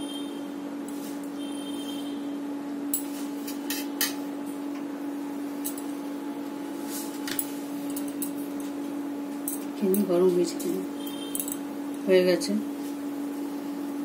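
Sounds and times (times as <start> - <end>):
steady low hum: 0.0 - 14.0
sharp clicks and clinks: 11.1 - 11.6.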